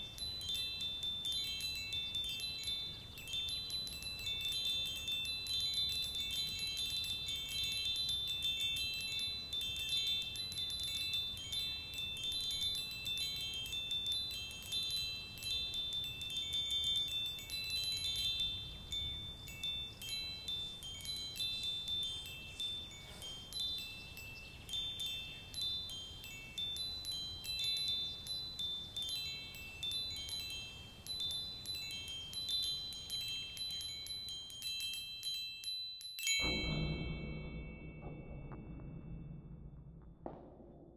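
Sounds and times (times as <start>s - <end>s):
chimes tinkling: 0.0s - 39.2s
faint low rumble: 36.4s - 40.9s.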